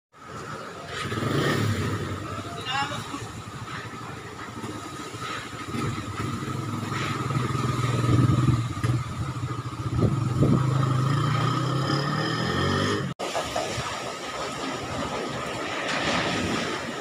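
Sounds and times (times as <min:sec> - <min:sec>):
strong wind buffeting microphone: 0:09.5 - 0:10.9.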